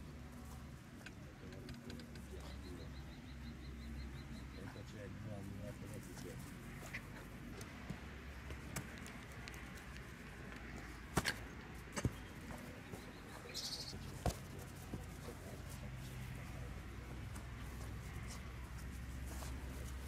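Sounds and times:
faint steady background noise: 0.0s - 20.0s
bird chirping: 1.5s - 5.1s, 12.1s - 14.2s
football being kicked: 14.1s - 14.9s.

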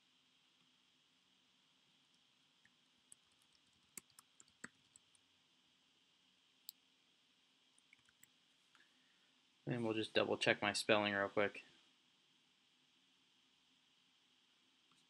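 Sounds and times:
keyboard and mouse clicks: 3.1s - 5.0s.

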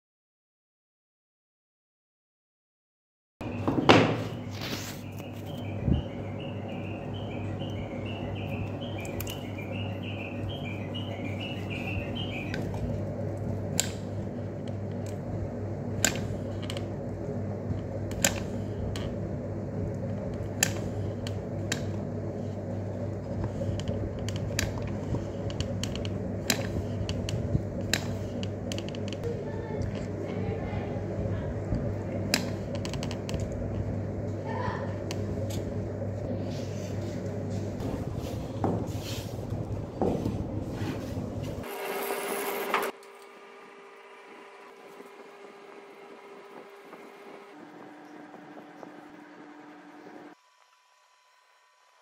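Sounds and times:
steady hum: 3.4s - 52.0s.

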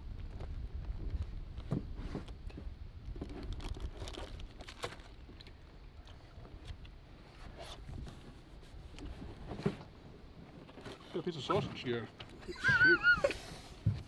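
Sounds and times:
wind rumble on microphone: 0.0s - 10.8s.

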